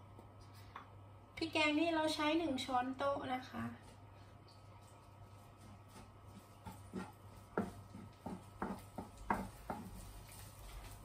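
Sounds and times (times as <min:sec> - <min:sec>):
wooden spatula scraping frying pan: 0:05.4 - 0:11.0.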